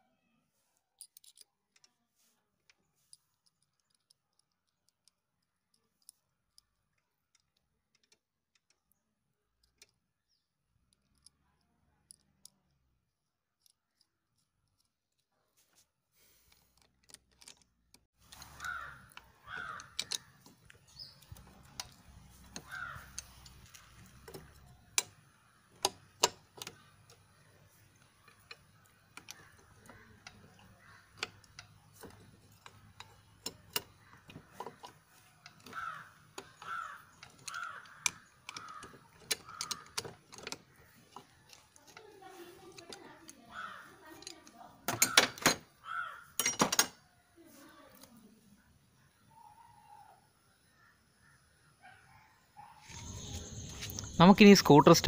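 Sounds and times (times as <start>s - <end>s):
metal spanner clicks and taps: 1.0s - 1.9s, 3.4s - 10.1s, 10.8s - 15.3s, 16.7s - 43.4s, 44.0s - 45.6s
crows cawing: 18.4s - 20.4s, 22.5s - 24.0s, 29.3s - 31.5s, 34.0s - 40.9s, 43.3s - 44.2s, 45.1s - 46.4s.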